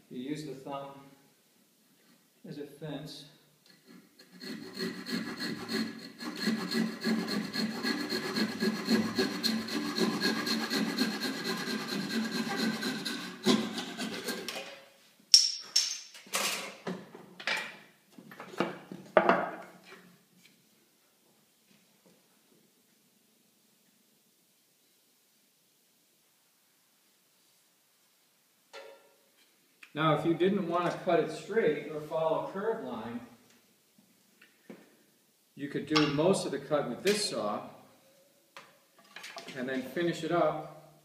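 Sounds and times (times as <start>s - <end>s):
handsaw cutting wood: 3.7s - 14.6s.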